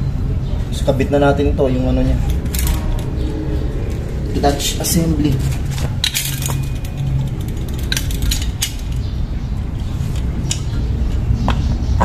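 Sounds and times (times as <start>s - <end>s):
steady low hum: 0.0s - 12.0s
metal parts clinking: 2.2s - 3.2s, 5.3s - 9.1s.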